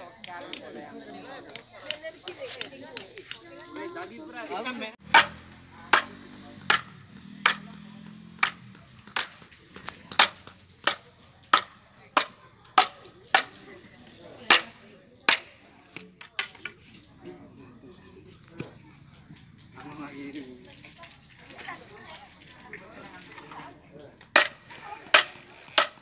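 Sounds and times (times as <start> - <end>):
machete chopping bamboo: 5.0 - 13.7, 14.4 - 16.8, 24.3 - 26.0.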